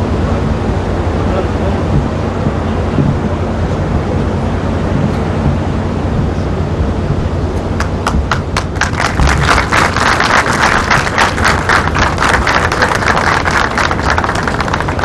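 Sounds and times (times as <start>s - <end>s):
steady low rumble: 0.0s - 15.0s
group applauding: 7.8s - 15.0s.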